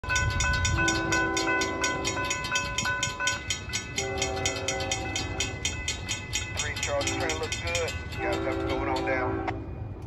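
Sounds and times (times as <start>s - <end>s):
crossing bells clanging: 0.0s - 10.0s
distant train horn: 0.7s - 2.3s, 3.8s - 5.7s, 6.6s - 9.9s.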